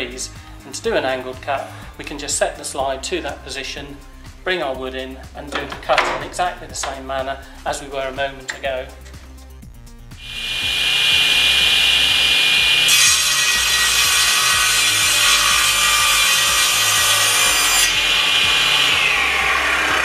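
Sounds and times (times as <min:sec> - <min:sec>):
saw blade cutting wood: 0:10.2 - 0:20.0
table saw blade whining: 0:10.2 - 0:20.0.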